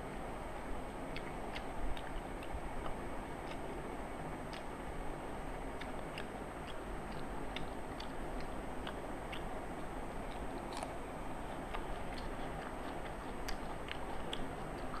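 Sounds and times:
chewing smacks: 0:01.1 - 0:03.7, 0:04.5 - 0:04.7, 0:05.8 - 0:15.0.

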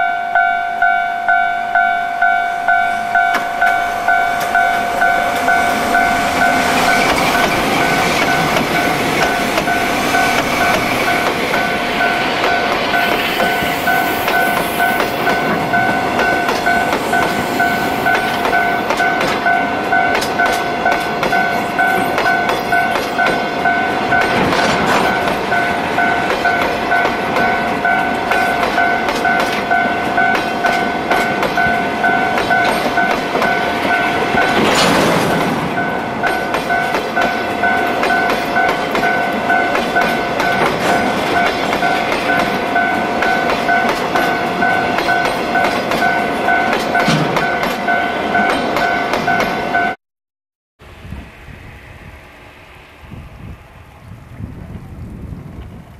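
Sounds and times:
level crossing bell ringing: 0:00.0 - 0:34.7
freight train rolling past: 0:00.0 - 0:50.0, 0:50.8 - 0:55.9
wheels clacking over rail joints: 0:03.2 - 0:49.6.

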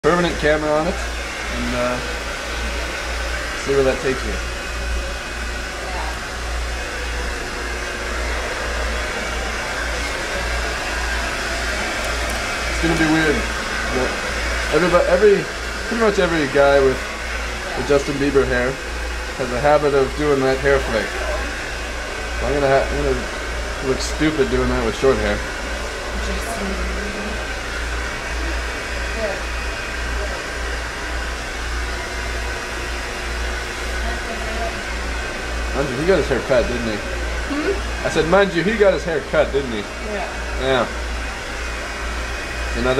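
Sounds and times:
hair dryer running: 0:00.0 - 0:42.9.

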